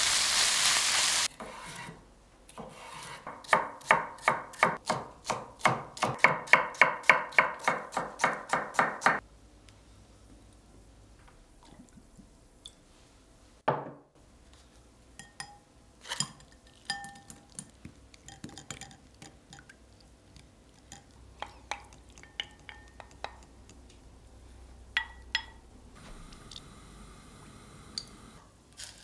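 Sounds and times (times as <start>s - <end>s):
wooden spoon tapping glass bowl: 21.4s - 23.5s, 25.0s - 25.6s.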